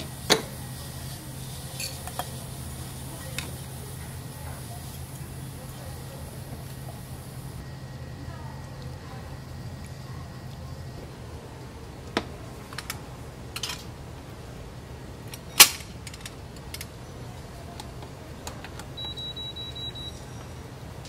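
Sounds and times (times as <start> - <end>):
cooker control panel beeps: 19.0 - 20.4.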